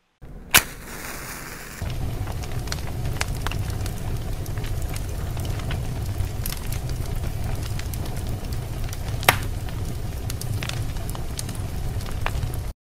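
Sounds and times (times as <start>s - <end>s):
fire crackles: 0.0s - 12.8s
rumble of flames: 0.2s - 12.7s
sharp pop: 0.5s - 1.8s, 9.3s - 9.5s.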